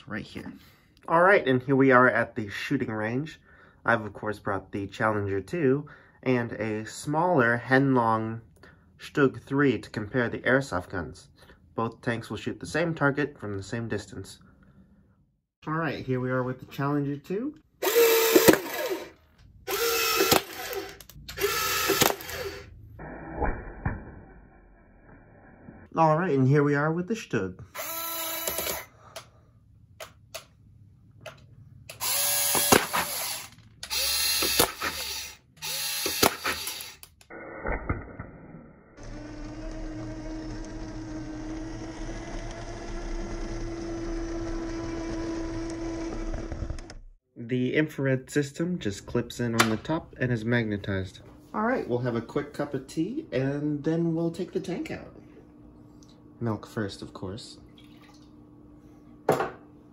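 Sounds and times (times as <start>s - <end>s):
motorised whirring: 17.8s - 22.7s, 27.8s - 28.9s, 31.9s - 37.2s, 39.0s - 47.2s
low hum: 19.4s - 26.0s.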